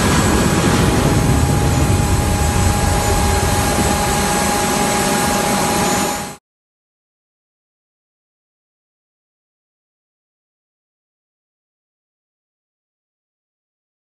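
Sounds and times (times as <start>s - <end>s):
jet engines roaring at high power: 0.0s - 6.4s.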